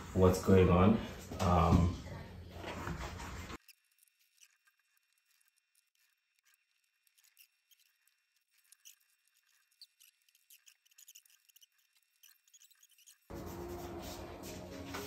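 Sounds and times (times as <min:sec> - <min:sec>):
pastel stick scratching paper: 0:03.6 - 0:14.4
music: 0:13.3 - 0:15.0.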